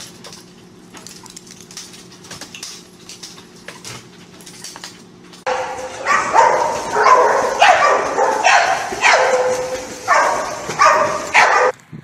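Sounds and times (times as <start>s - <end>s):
dog barking: 5.5s - 11.8s.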